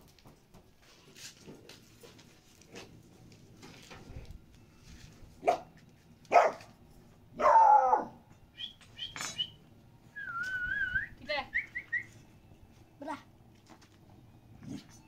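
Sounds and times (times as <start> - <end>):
dog barking: 5.4 - 6.8, 7.4 - 8.2.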